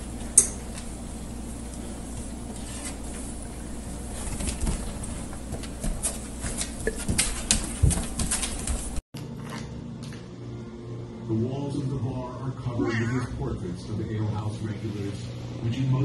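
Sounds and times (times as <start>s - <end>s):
scrabbling clicks on hard floor: 4.2s - 9.0s.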